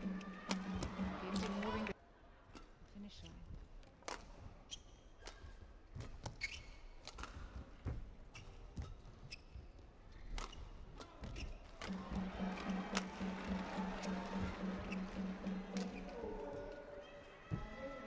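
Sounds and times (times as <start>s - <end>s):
racket striking shuttlecock: 0.1s - 1.8s
shoe squeaks on court: 4.7s - 7.4s, 8.3s - 11.7s.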